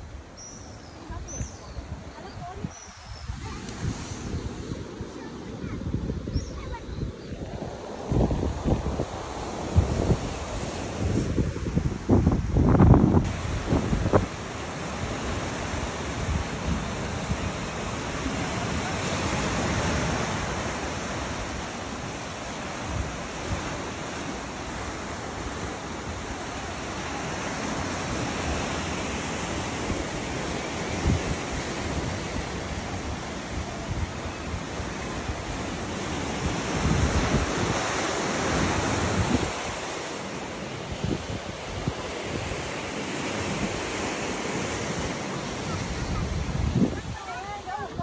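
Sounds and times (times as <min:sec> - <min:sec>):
wind buffeting microphone: 0:01.0 - 0:48.0.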